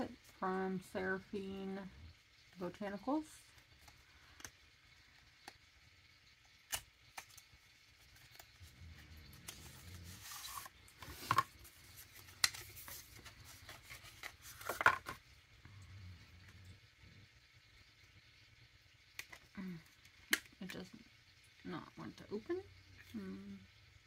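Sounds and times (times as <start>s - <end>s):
cardboard rustling and scraping: 9.4s - 15.2s.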